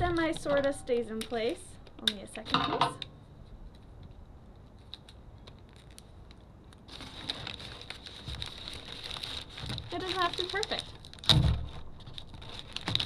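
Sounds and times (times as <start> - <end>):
paper bag crinkling: 4.7 - 13.0.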